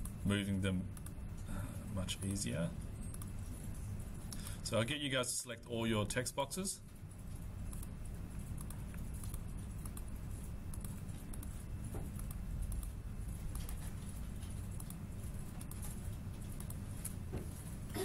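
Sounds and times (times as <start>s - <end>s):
low room hum: 0.0s - 18.0s
computer mouse clicks: 3.0s - 3.4s, 7.7s - 17.2s.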